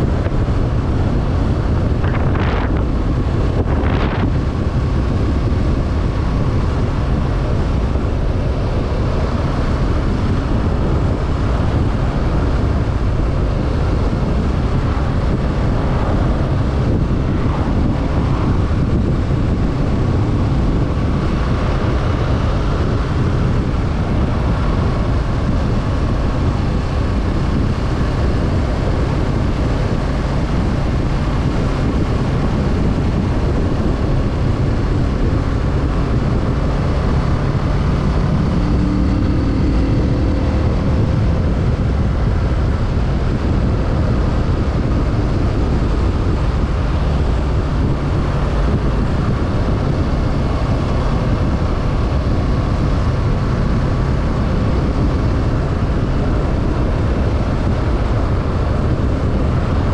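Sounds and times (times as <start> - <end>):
motorcycle engine running: 0.0 - 59.9
wind rush on microphone: 0.0 - 59.9.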